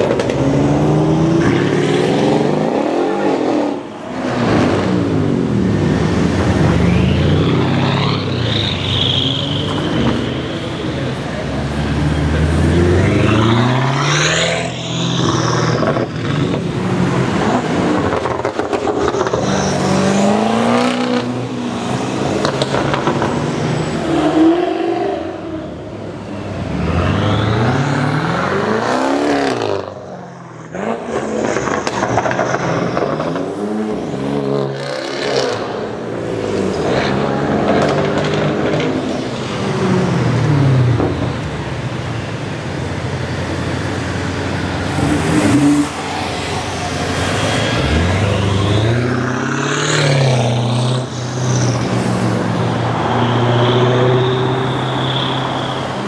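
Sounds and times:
car engine revving: 0.0s - 25.6s.

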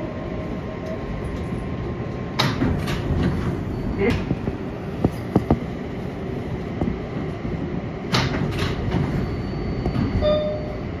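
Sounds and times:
train equipment rumble: 0.0s - 11.0s
brief tone: 9.1s - 11.0s.

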